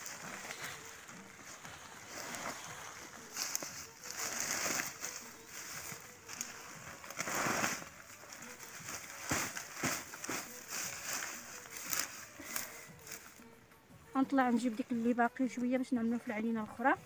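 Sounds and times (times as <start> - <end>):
weeds rustling and crackling: 0.0 - 13.5
stems snapping: 6.2 - 13.3.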